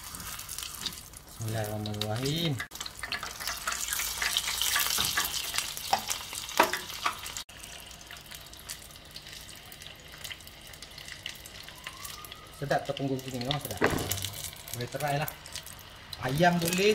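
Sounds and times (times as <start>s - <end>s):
deep-frying sizzle and crackle: 0.0s - 16.9s.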